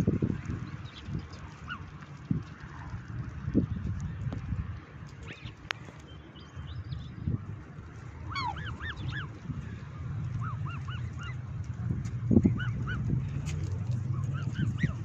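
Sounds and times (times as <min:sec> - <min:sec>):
swans honking: 0:07.9 - 0:11.6, 0:14.2 - 0:15.0.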